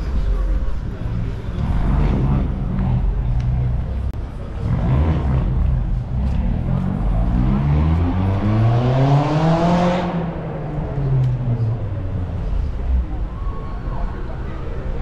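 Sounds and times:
vehicle accelerating past: 0:04.5 - 0:11.4.

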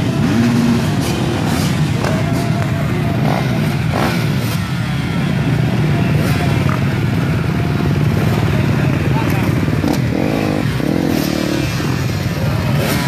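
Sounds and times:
motocross bikes revving: 0:00.0 - 0:13.0.

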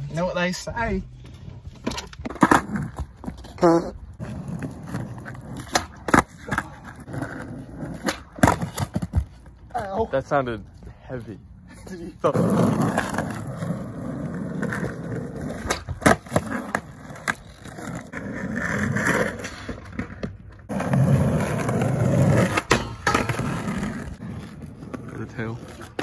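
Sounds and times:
skateboard wheels rolling on concrete: 0:00.0 - 0:26.0
skateboard clacking on ground: 0:14.4 - 0:26.0.

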